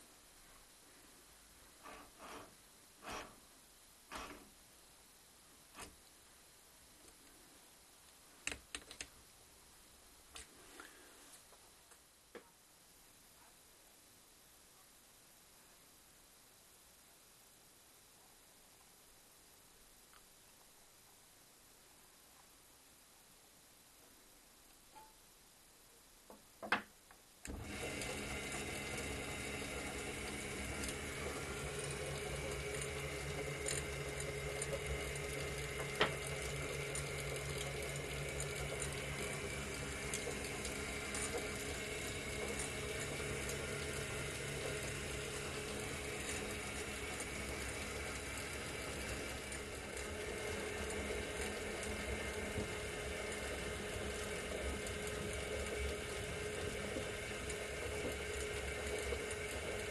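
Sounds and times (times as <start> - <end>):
electric motor humming: 27.5 - 59.9.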